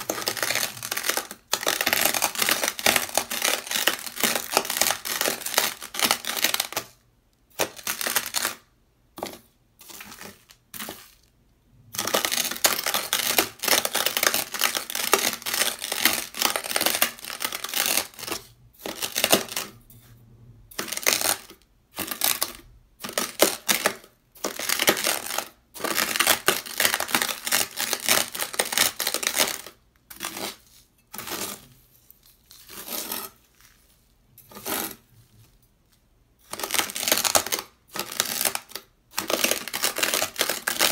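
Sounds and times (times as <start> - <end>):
knives scraping gritty sand: 34.4 - 35.0.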